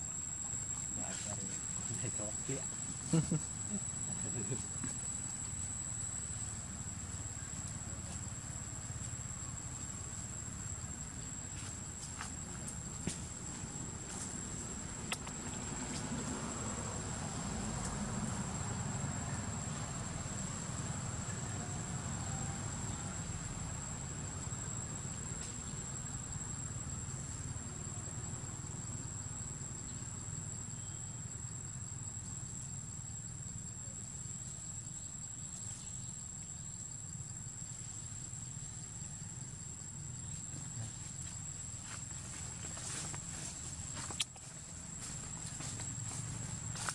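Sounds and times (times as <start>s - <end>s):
high-pitched insect drone: 0.0s - 12.4s.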